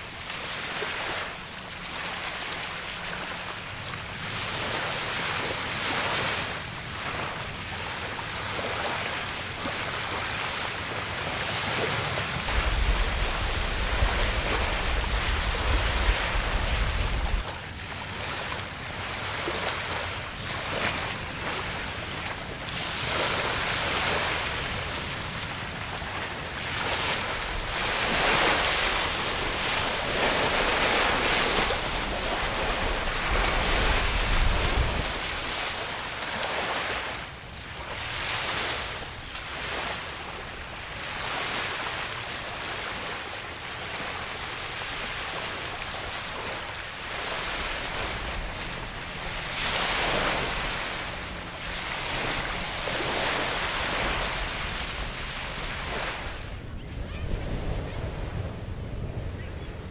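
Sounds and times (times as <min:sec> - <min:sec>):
choppy water slapping: 0:00.0 - 0:56.7
wind blowing across microphone: 0:00.0 - 0:59.9
low wind rumble: 0:09.2 - 0:36.2, 0:44.1 - 0:59.9.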